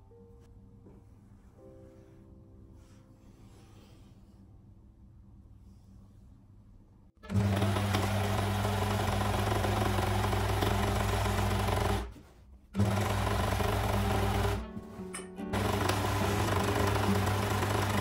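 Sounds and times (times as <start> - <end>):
overlock sewing machine running: 7.3 - 12.2, 12.8 - 14.6, 15.5 - 18.0.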